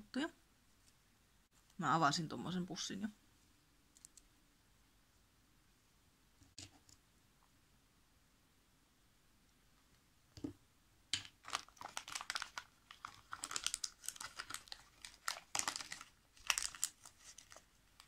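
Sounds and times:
plastic packaging crinkling: 0:11.2 - 0:18.0.

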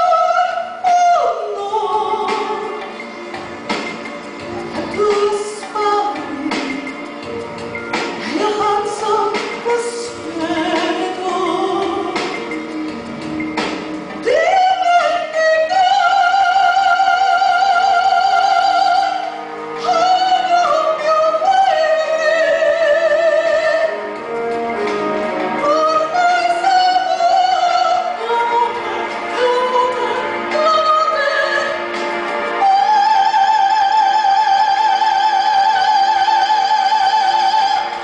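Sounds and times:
operatic soprano singing: 0:00.0 - 0:03.0, 0:04.6 - 0:07.2, 0:08.1 - 0:12.5, 0:14.2 - 0:24.2, 0:25.5 - 0:38.0.

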